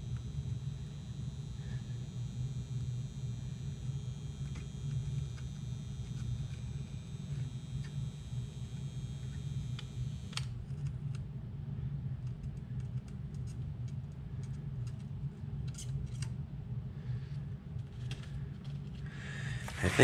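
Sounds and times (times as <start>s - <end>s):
soldering gun humming: 0.0s - 10.8s, 19.3s - 20.0s
small clicks from handling wire: 12.2s - 16.4s.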